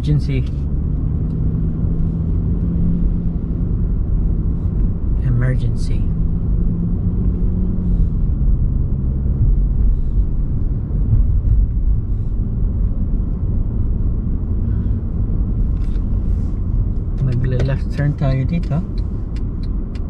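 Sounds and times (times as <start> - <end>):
car engine and road noise rumble: 0.0 - 20.0.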